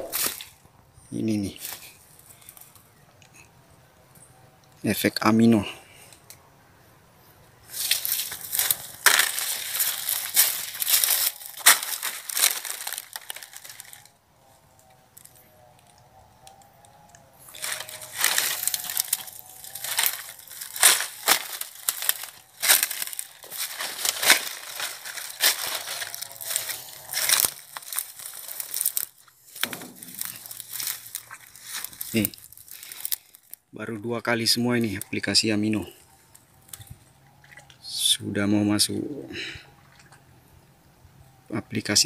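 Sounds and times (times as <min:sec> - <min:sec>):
footsteps crunching through dry leaves: 0:00.0 - 0:00.6, 0:01.4 - 0:02.8, 0:07.6 - 0:14.1, 0:17.3 - 0:33.7
twigs snapping: 0:00.0 - 0:00.6, 0:07.7 - 0:14.1, 0:14.8 - 0:33.6, 0:36.3 - 0:37.7.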